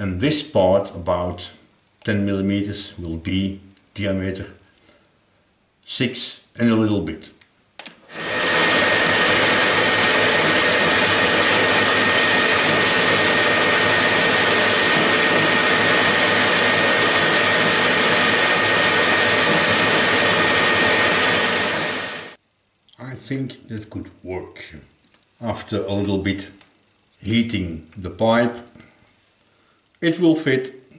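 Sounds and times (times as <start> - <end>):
metal lathe running with whine: 8.1 - 22.4.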